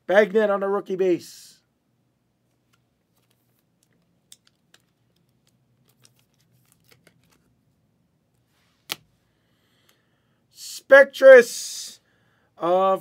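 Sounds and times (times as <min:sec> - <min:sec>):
cards clicking and rustling: 0:02.6 - 0:07.5.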